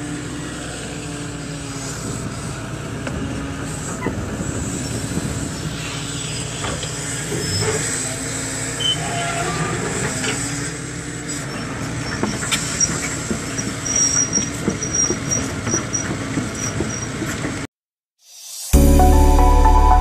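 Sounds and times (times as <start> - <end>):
excavator engine hum: 0.0 - 17.7
short high squeaks: 7.3 - 8.1, 8.8 - 10.5, 11.3 - 17.2
steel track clatter: 11.6 - 17.7.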